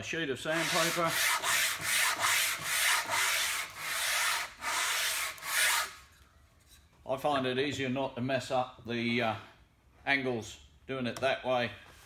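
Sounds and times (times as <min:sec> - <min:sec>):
wood rubbing on sandpaper: 0:00.5 - 0:06.0.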